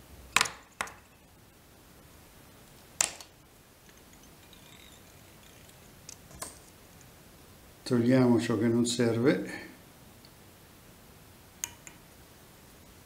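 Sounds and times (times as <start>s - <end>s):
tools clicking: 3.9s - 6.7s.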